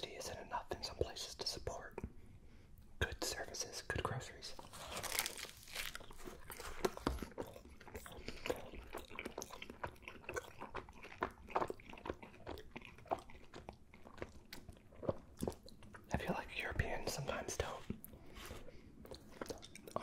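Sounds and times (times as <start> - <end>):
person chewing food: 4.5 - 16.1, 17.8 - 20.0.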